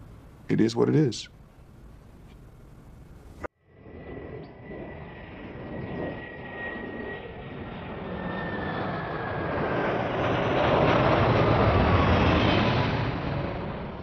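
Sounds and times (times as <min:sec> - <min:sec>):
jet engine whine: 0:01.5 - 0:14.0
jet airliner passing overhead: 0:03.5 - 0:14.0.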